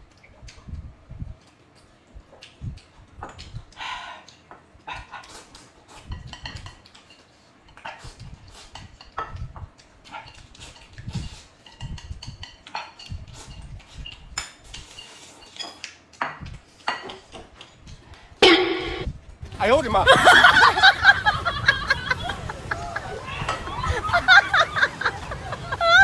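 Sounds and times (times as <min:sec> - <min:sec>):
chewing: 0:00.0 - 0:18.3.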